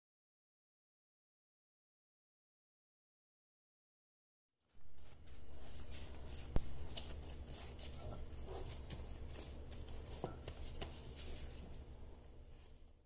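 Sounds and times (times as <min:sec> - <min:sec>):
low steady hum: 0:04.7 - 0:13.0
dough squishing: 0:04.8 - 0:13.0.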